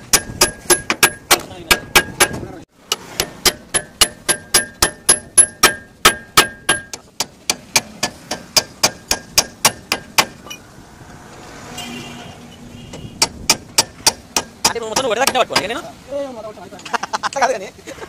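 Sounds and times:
hammer striking metal bolt: 0.0s - 10.6s, 13.2s - 15.7s.

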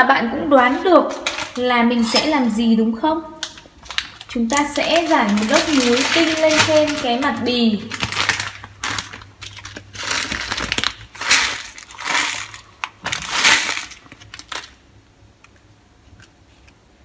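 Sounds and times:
plastic bag crinkling: 0.6s - 1.7s, 3.4s - 14.9s
salt crystals pouring: 4.6s - 14.8s.

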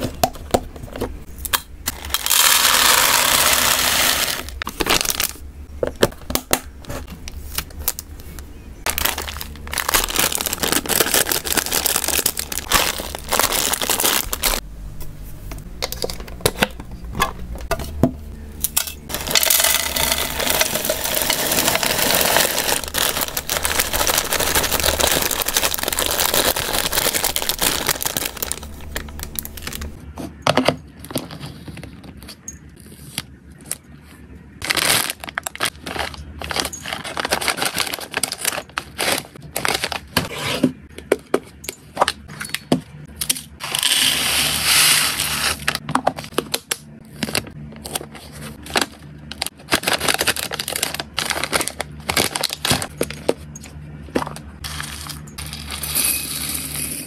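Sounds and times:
dry food pouring: 1.9s - 4.5s, 19.1s - 30.0s
food bags crinkling: 1.9s - 5.4s, 8.9s - 14.6s, 19.0s - 30.0s, 34.6s - 40.2s, 48.0s - 53.3s.

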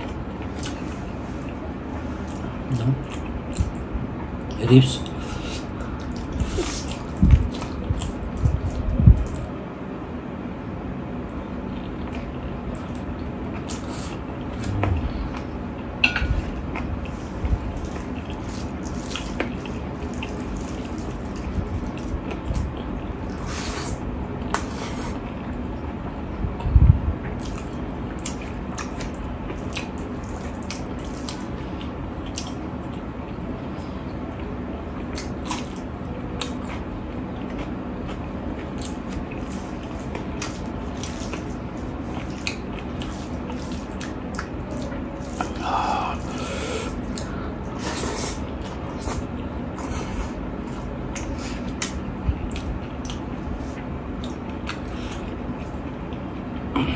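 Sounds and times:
chewing and lip smacks: 27.2s - 33.3s, 34.4s - 45.6s, 46.2s - 56.7s.

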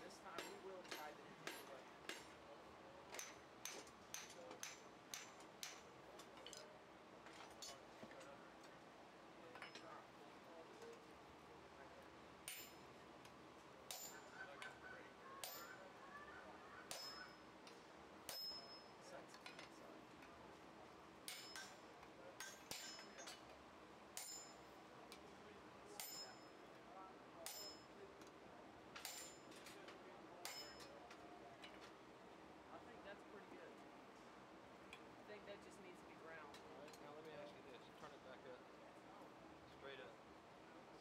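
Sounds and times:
hammer clanging on metal: 0.3s - 2.4s, 3.1s - 6.6s, 12.4s - 12.9s, 13.9s - 14.8s, 15.4s - 15.9s, 16.9s - 17.4s, 18.3s - 19.7s, 21.3s - 21.8s, 22.4s - 23.5s, 24.2s - 25.2s, 26.0s - 26.6s, 27.4s - 27.9s, 29.0s - 29.8s, 30.4s - 31.0s.

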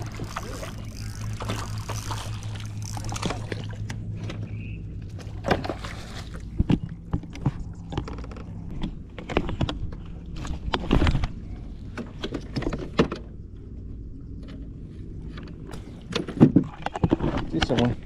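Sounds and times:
water splashing: 0.0s - 3.9s, 5.2s - 6.6s
steady low hum: 0.0s - 18.0s.

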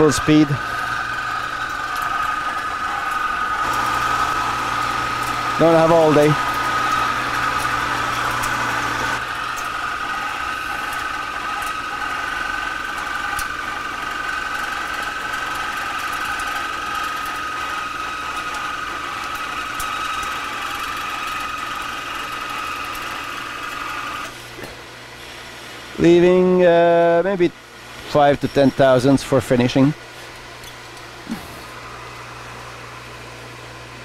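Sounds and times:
lathe cutting whine: 0.0s - 24.4s
lathe machine hum: 0.0s - 24.6s, 31.2s - 34.0s.

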